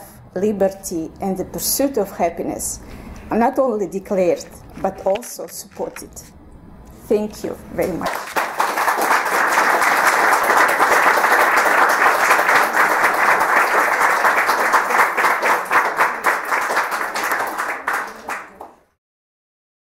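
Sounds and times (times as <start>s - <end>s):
audience applauding: 8.1s - 18.9s.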